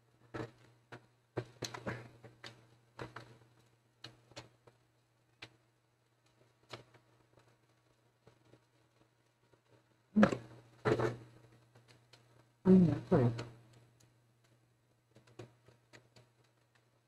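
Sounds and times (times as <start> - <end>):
plastic laptop casing clicks and knocks: 0.4 - 3.4, 15.1 - 16.9
faint low hum: 3.0 - 15.5.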